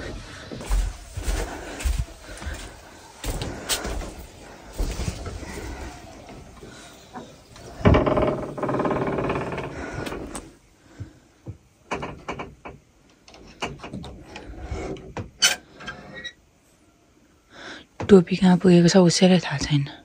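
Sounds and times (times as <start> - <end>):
wooden door creaking open: 5.2 - 10.6, 11.8 - 16.2.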